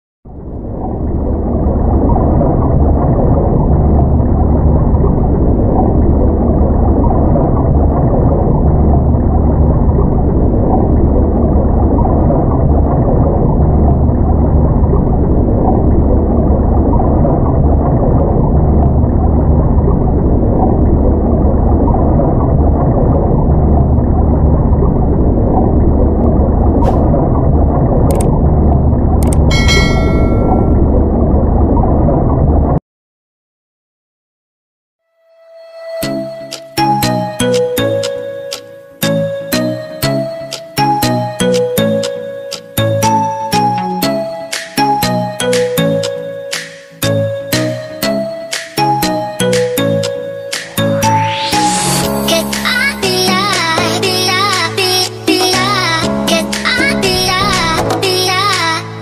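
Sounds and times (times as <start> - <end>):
deep low rumble: 0.3 - 32.8
muffled stream water underwater: 0.3 - 32.8.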